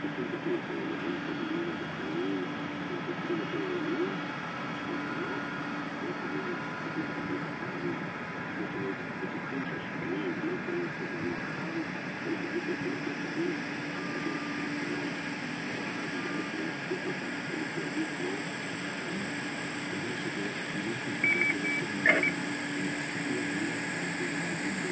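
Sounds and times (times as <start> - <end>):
short high beeps: 21.2 - 22.4.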